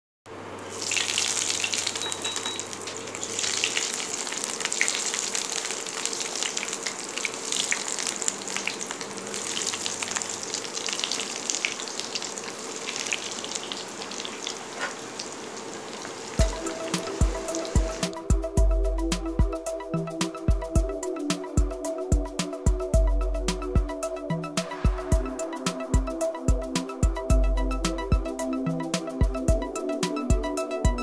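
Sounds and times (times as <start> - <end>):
chicken nuggets sizzling in oil: 0.6 - 18.0.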